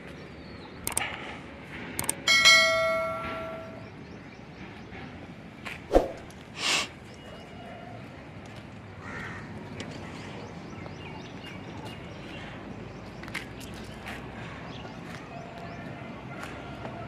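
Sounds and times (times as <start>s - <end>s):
mouse clicks: 0.8s - 1.1s, 2.0s - 2.2s
bright bell chime: 2.3s - 3.8s.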